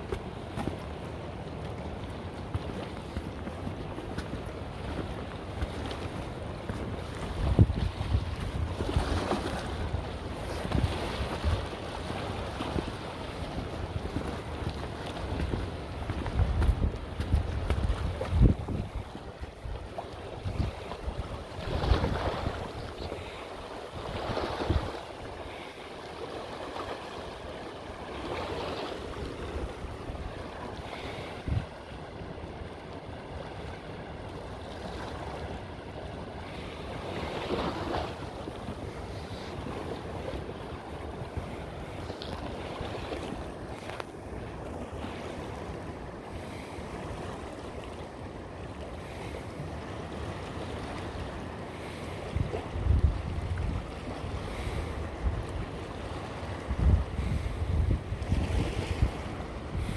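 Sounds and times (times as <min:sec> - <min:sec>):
wind buffeting microphone: 0:00.0 - 0:25.6, 0:27.3 - 0:33.6, 0:49.0 - 0:59.9.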